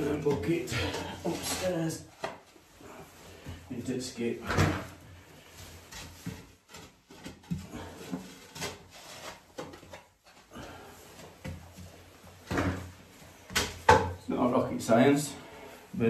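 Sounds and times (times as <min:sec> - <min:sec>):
man breathing heavily: 0:10.4 - 0:12.0.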